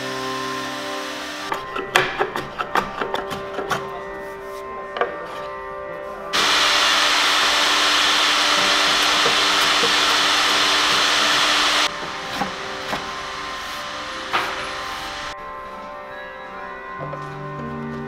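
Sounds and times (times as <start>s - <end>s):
background music: 0.0s - 6.4s, 11.9s - 18.0s
workshop machine rushing: 6.4s - 15.4s.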